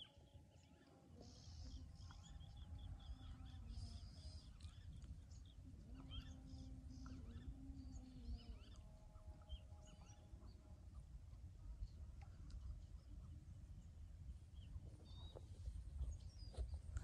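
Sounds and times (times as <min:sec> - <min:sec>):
small birds chirping: 0:00.0 - 0:13.9, 0:14.5 - 0:17.0
faint steady hum: 0:00.0 - 0:17.0
low wind rumble: 0:01.6 - 0:17.0.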